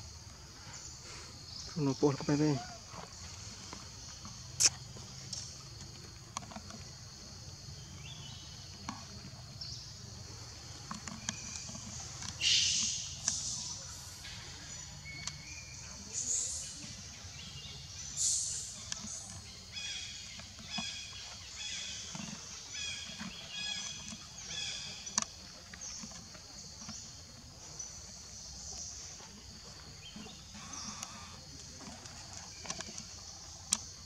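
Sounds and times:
high-pitched insect drone: 0:30.6 - 0:31.4.

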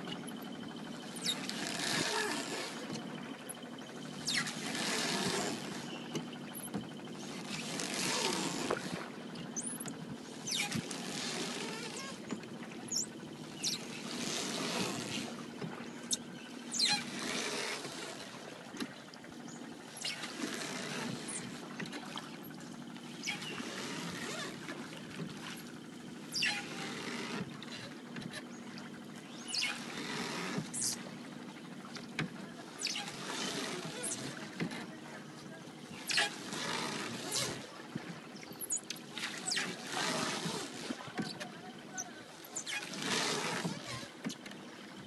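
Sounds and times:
oars splashing through water: 0:00.0 - 0:45.0
water trickling off oar blades: 0:00.0 - 0:45.0.

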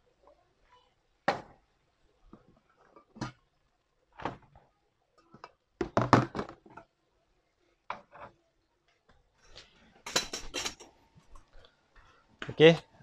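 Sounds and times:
hard objects knocking: 0:05.8 - 0:06.8.

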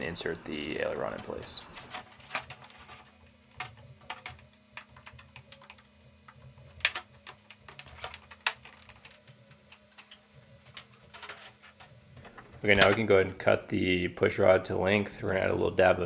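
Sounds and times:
plastic parts clicking and tapping: 0:01.0 - 0:13.1.

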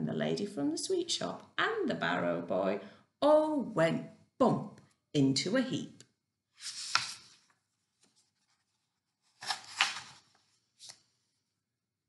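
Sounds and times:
book pages rustling and crackling: 0:06.6 - 0:11.2.

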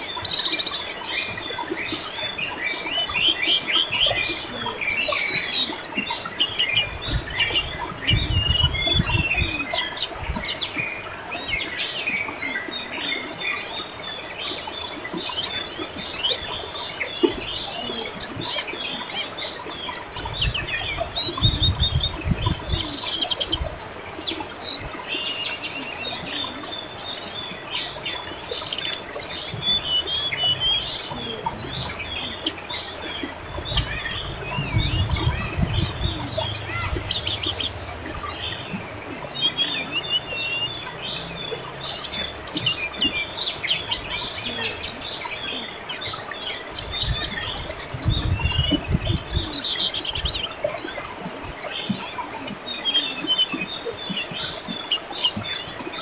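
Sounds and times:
river water babbling: 0:00.0 - 0:56.0
small birds chirping: 0:00.0 - 0:56.0
low rumble: 0:29.6 - 0:44.5.

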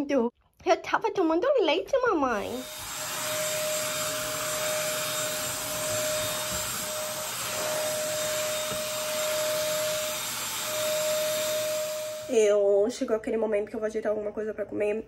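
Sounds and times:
vacuum cleaner on carpet: 0:02.4 - 0:12.5.

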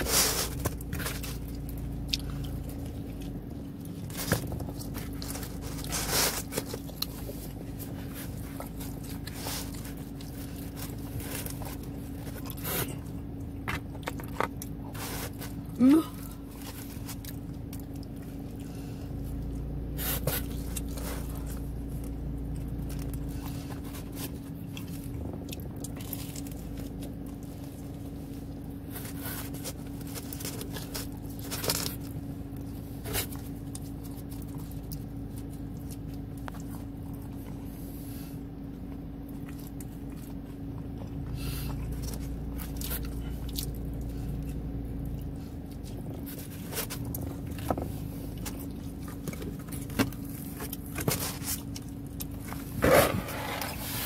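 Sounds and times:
person chewing food: 0:00.0 - 0:54.0
steady low hum: 0:00.0 - 0:54.0.

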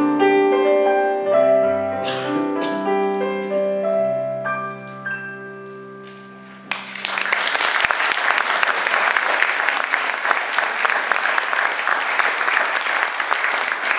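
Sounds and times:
piano chord: 0:00.0 - 0:07.1
audience applause: 0:06.7 - 0:13.9.

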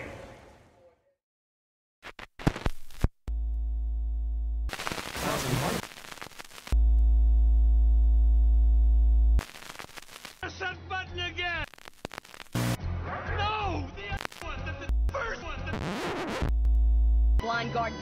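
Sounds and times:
buzzy electrical hum: 0:03.3 - 0:05.2, 0:05.8 - 0:10.3
burst of noise: 0:04.7 - 0:06.8, 0:09.4 - 0:10.4, 0:11.6 - 0:12.8.

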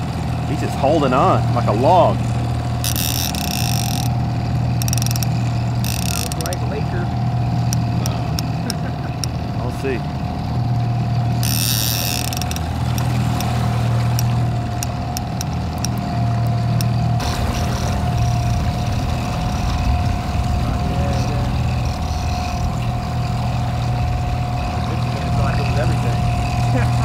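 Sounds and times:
boat motor droning: 0:00.0 - 0:27.0
faint ticks: 0:02.8 - 0:06.6, 0:07.5 - 0:09.4, 0:11.0 - 0:17.0.

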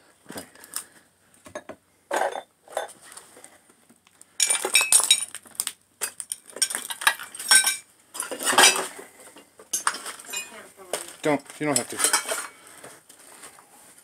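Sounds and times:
metal pots and pans clattering: 0:01.5 - 0:03.0, 0:04.4 - 0:05.3, 0:06.0 - 0:10.6, 0:11.8 - 0:12.6.

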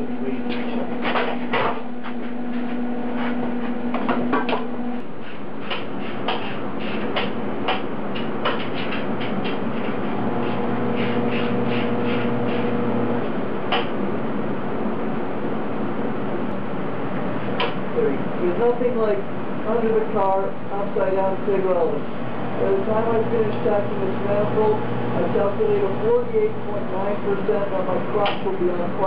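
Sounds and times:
welder hiss and hum: 0:05.0 - 0:13.1.

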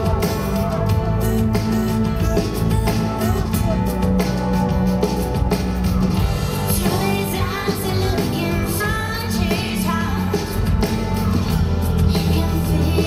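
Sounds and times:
live pop music: 0:00.0 - 0:13.0
woman singing: 0:06.7 - 0:13.0.

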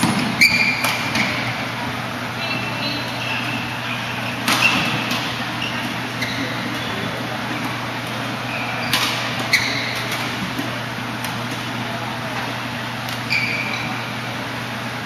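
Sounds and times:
shoes squeaking on court: 0:00.0 - 0:01.8, 0:02.4 - 0:11.8, 0:13.0 - 0:14.2
sports hall hum and hiss: 0:00.0 - 0:15.0.

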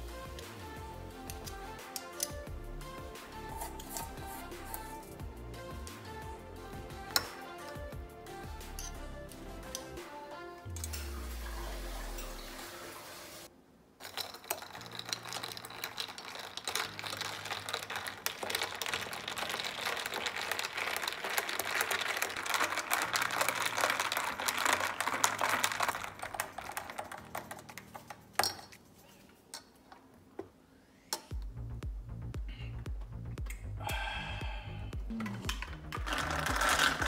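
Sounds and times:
teaspoons clinking against glass: 0:03.6 - 0:05.0, 0:14.0 - 0:28.8, 0:36.0 - 0:37.0.

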